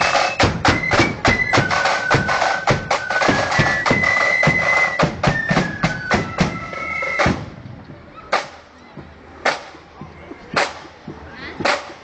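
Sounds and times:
drum beat: 0:00.0 - 0:07.6
flute band playing: 0:00.0 - 0:08.6.

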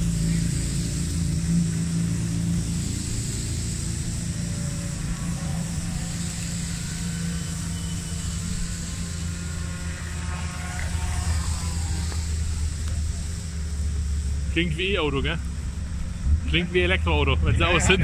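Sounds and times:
race car engines droning: 0:00.0 - 0:18.0.

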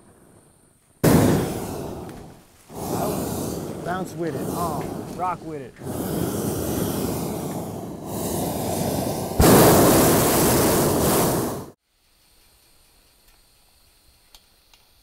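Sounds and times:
balloon burner roaring: 0:01.0 - 0:11.8.

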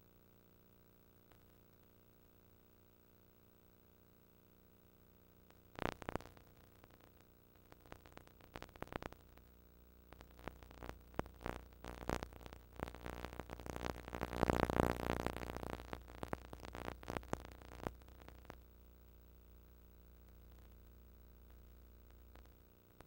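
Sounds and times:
faint low hum: 0:00.0 - 0:23.0
tape crackling and popping: 0:05.8 - 0:09.5, 0:10.1 - 0:18.6.

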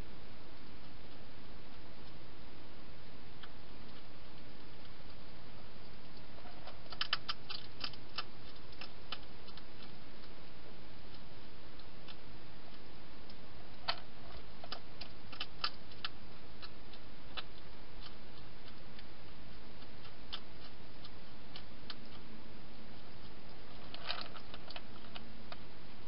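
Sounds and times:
steady hiss: 0:00.0 - 0:26.0
hedgehog chewing clicks: 0:05.8 - 0:10.4, 0:11.1 - 0:22.3, 0:22.9 - 0:25.6.

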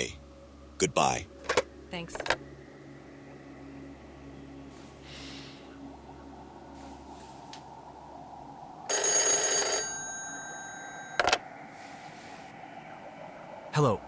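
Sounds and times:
telephone bell ringing: 0:08.9 - 0:11.4.

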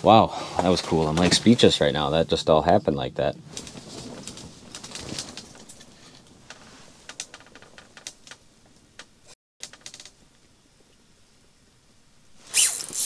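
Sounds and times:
rustling: 0:03.2 - 0:10.2.

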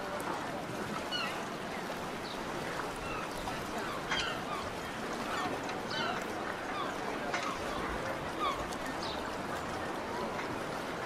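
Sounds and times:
background murmur: 0:00.0 - 0:11.0
water birds squawking: 0:00.0 - 0:11.0.

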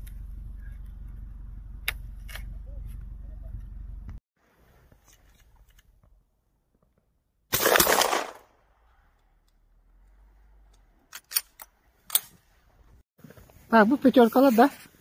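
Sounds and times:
shotgun shot: 0:07.5 - 0:08.5.

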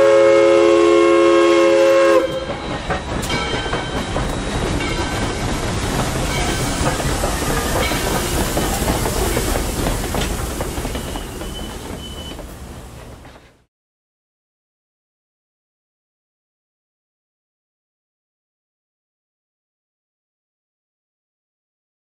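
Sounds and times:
steam locomotive whistle: 0:00.0 - 0:02.6, 0:10.9 - 0:12.5
train rumble: 0:00.0 - 0:13.7
train wheels clacking over rail joints: 0:01.6 - 0:13.7.

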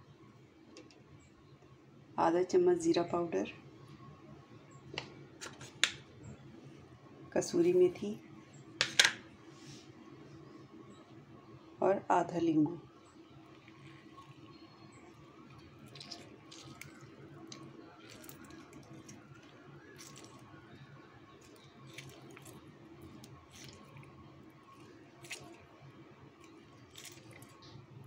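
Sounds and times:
low steady hum: 0:00.0 - 0:28.0
juice ticking: 0:13.2 - 0:20.6
lemon squelching: 0:13.5 - 0:20.6, 0:21.3 - 0:27.8.

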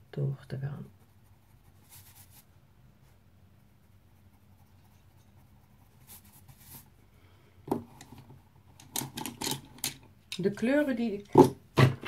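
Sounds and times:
pencil scratching on paper: 0:00.8 - 0:06.9.

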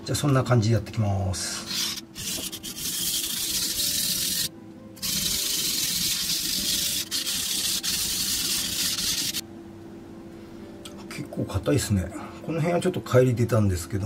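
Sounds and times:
knife scraping on whetstone: 0:01.6 - 0:09.4.

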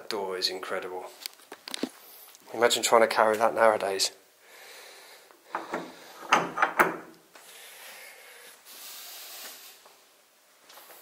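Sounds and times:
faint steady hiss: 0:00.0 - 0:11.0
wooden door knocks and clunks: 0:05.6 - 0:07.1.

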